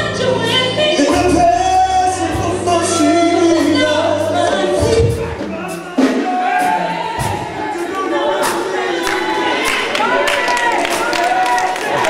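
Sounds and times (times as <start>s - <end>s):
instrumental backing: 0.0s - 12.0s
man and woman singing: 0.0s - 12.0s
drum strikes: 4.8s - 9.9s.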